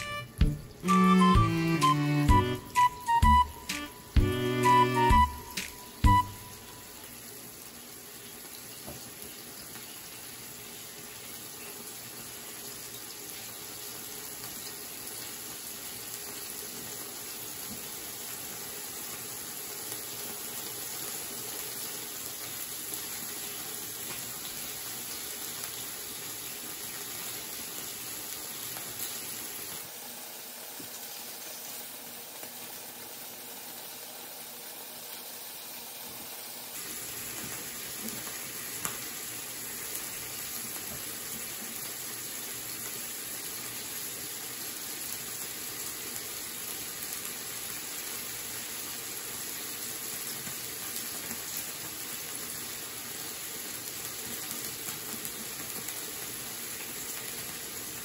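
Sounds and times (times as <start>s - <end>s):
meat sizzling on a grill plate: 6.5s - 29.8s, 36.7s - 58.0s.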